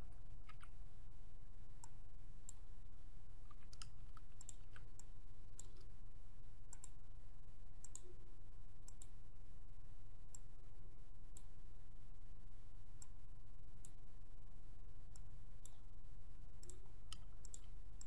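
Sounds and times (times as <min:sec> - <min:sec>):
low background hum: 0:00.0 - 0:18.0
computer mouse clicking: 0:03.5 - 0:05.9, 0:06.7 - 0:07.0, 0:07.8 - 0:08.1, 0:08.9 - 0:09.2, 0:16.6 - 0:17.7.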